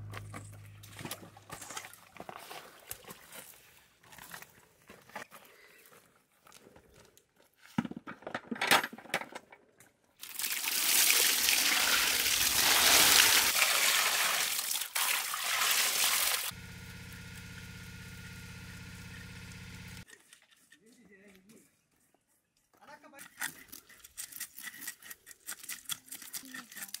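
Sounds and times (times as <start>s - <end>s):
water splashing in metal basin: 10.2s - 16.5s
steady low hum: 16.5s - 20.0s.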